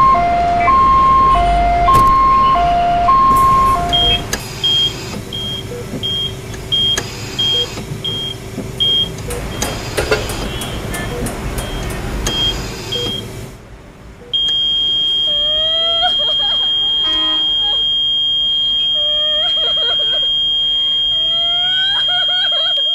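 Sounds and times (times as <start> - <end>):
rising wavering cries: 0.0 - 4.4, 18.6 - 22.9
patient monitor flatline tone: 0.0 - 13.2, 14.2 - 22.9
short electronic beeps: 0.0 - 13.3
traffic noise: 0.0 - 22.9.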